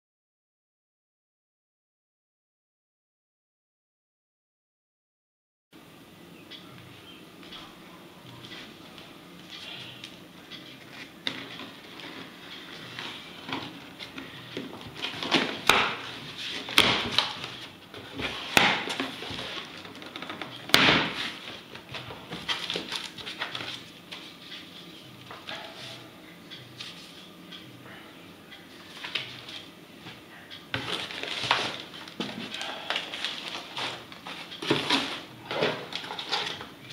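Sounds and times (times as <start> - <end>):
cardboard and paper rustling: 10.8 - 24.2, 30.7 - 36.6.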